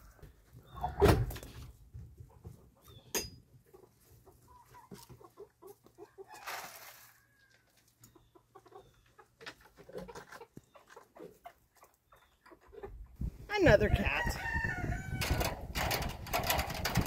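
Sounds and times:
chickens clucking softly: 0:00.0 - 0:13.2.

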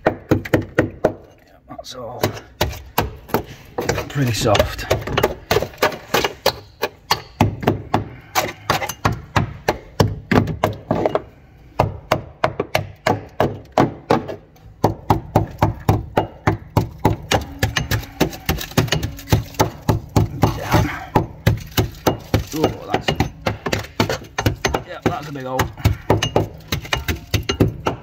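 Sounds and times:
small hammer tapping on metal: 0:21.2 - 0:28.0.

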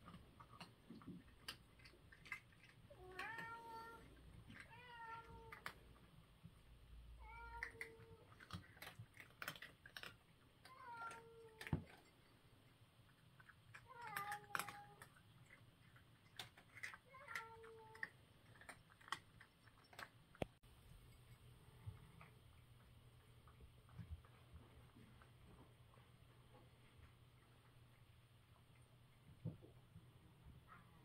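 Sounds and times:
cat crunching food: 0:00.0 - 0:29.4
cat meowing: 0:02.9 - 0:05.7, 0:07.2 - 0:08.3, 0:10.7 - 0:11.8, 0:13.8 - 0:15.1.

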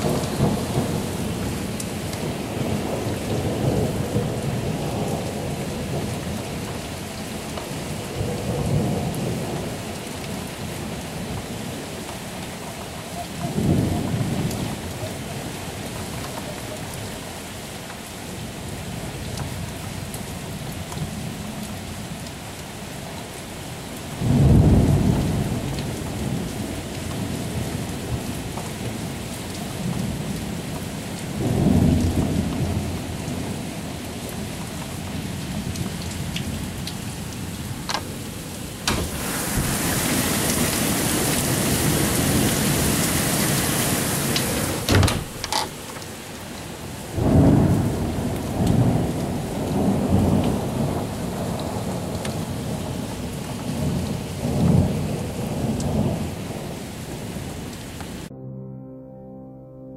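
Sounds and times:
thunder rumbling: 0:00.0 - 0:06.1, 0:35.6 - 0:43.0, 0:47.1 - 0:57.5
rain falling: 0:00.0 - 0:58.3.

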